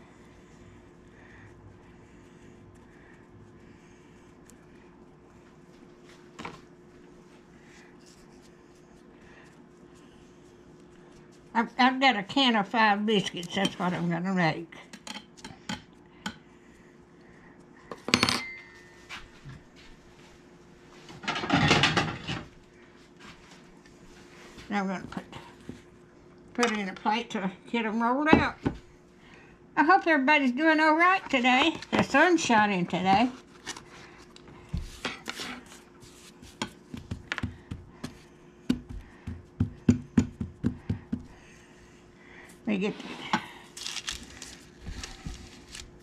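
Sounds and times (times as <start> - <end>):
faint hum: 0.0 - 46.0
hands rubbing dough: 7.0 - 14.3, 31.4 - 41.9
hands patting dough on counter: 34.7 - 41.5.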